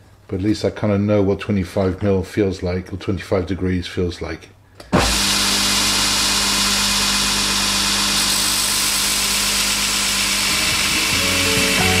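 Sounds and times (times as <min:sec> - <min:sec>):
belt grinder grinding steel: 0:05.0 - 0:12.0.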